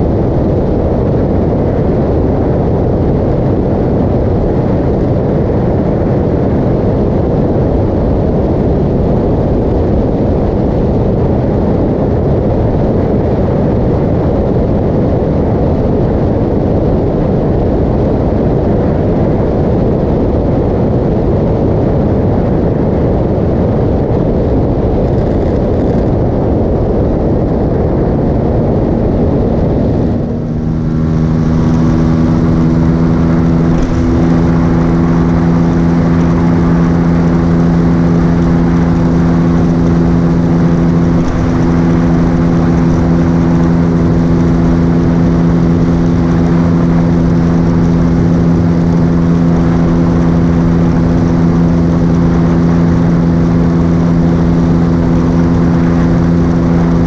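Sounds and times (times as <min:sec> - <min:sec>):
wind rush on microphone: 0:00.0 - 0:57.0
motorcycle engine cruising: 0:24.0 - 0:57.0.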